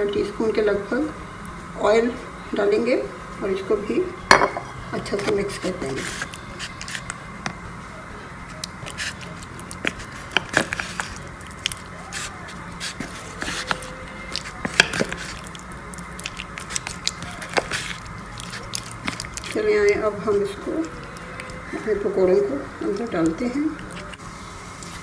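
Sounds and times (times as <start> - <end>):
steady background hum: 0.0 - 25.0
spoon scraping plastic container: 5.0 - 7.2, 8.6 - 22.2.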